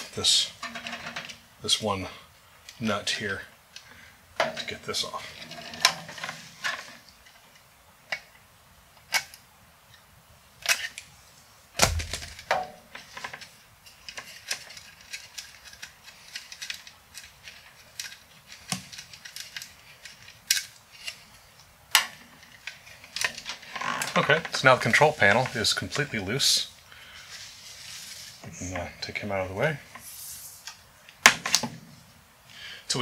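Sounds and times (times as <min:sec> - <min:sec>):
heavy thump: 0:11.8 - 0:12.4.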